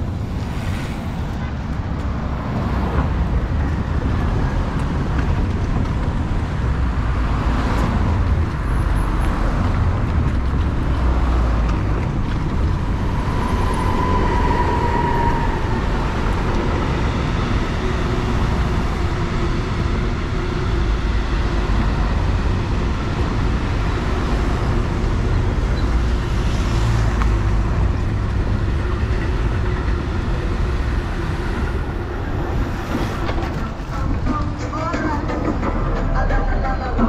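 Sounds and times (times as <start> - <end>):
vehicles driving past: 0.0 - 37.0.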